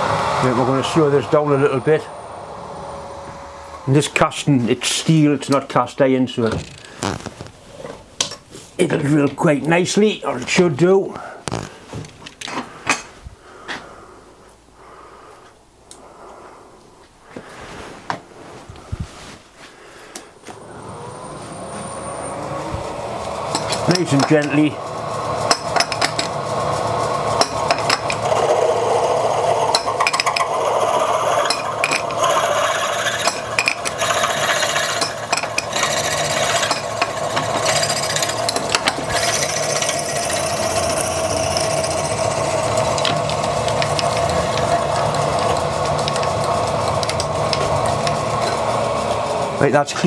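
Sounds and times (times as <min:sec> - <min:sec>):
milling machine tone: 0:00.0 - 0:04.2, 0:20.6 - 0:49.8
drill bit scraping and ticking: 0:22.3 - 0:49.8.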